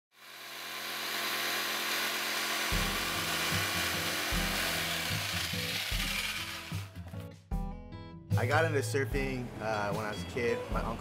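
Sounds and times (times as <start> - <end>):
power tool grinding: 0.1 - 6.9.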